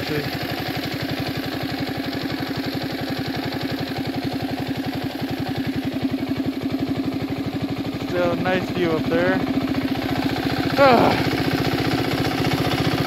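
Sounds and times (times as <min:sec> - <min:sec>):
small engine idling: 0:00.0 - 0:13.0.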